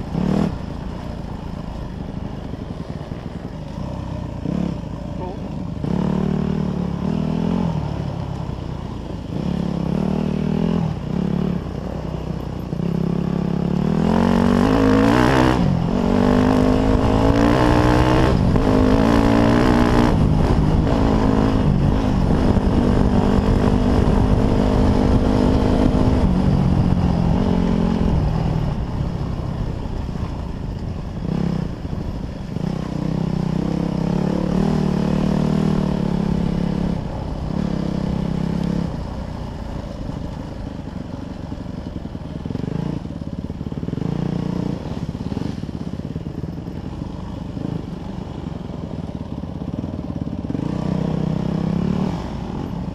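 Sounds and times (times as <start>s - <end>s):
dirt bike engine revving: 0.0s - 1.4s, 2.4s - 8.0s, 9.2s - 11.6s, 12.8s - 28.9s, 31.2s - 39.0s, 50.5s - 52.8s.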